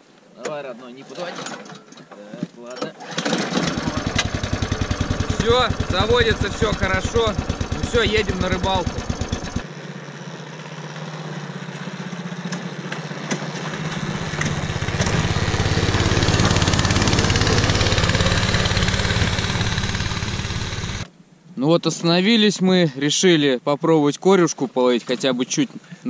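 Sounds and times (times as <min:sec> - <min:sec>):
small engine running: 0:03.1 - 0:21.1.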